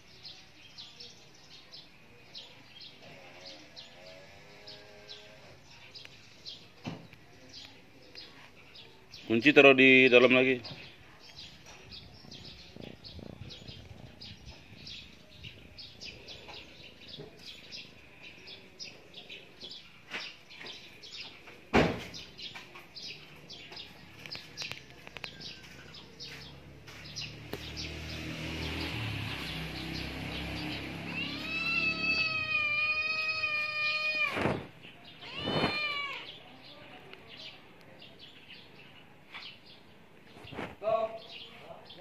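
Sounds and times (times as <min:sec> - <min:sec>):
small birds chirping: 0:00.0 - 0:42.0
cat meowing: 0:31.0 - 0:36.4.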